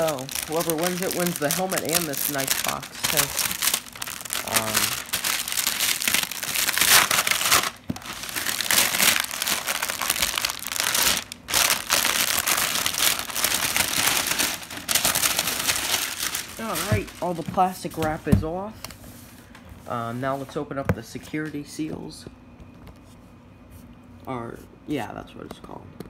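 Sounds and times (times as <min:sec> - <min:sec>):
plastic wrap crinkling: 0:00.0 - 0:18.3.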